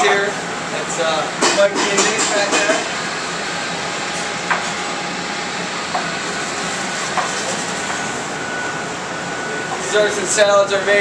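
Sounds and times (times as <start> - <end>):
ventilation fans rushing: 0.0 - 11.0
pans or dishes clinking: 1.4 - 2.9.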